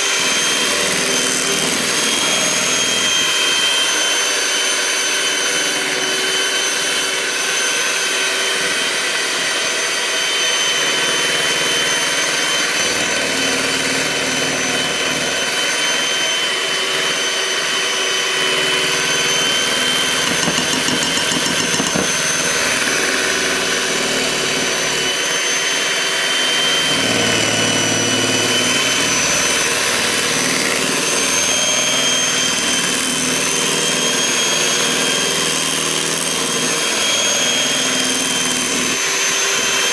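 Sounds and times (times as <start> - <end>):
kitchen appliance motor whining: 0.0 - 39.9.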